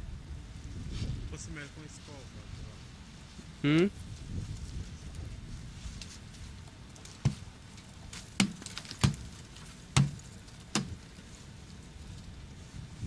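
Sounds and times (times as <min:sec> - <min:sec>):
sharp knocks breaking ice: 0:08.1 - 0:11.0.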